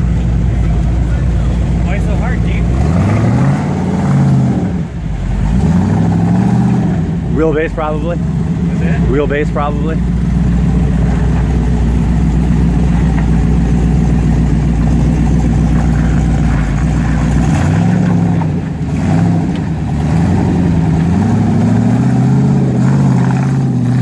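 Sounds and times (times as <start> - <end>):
off-road engine revving: 0.0 - 24.0.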